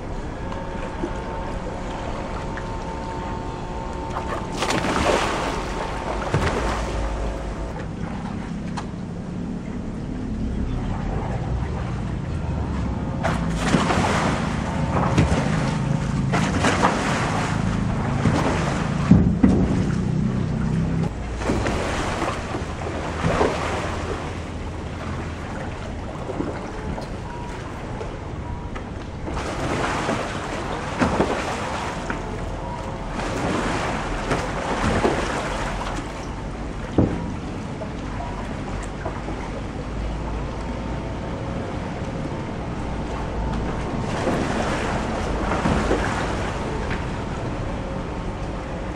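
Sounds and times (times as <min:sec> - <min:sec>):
river water lapping and splashing: 0:00.0 - 0:48.9.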